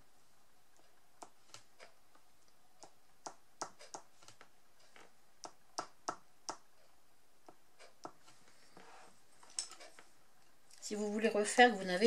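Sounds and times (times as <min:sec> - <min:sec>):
dotting tool tapping on paper: 0:02.8 - 0:06.8, 0:07.4 - 0:08.3.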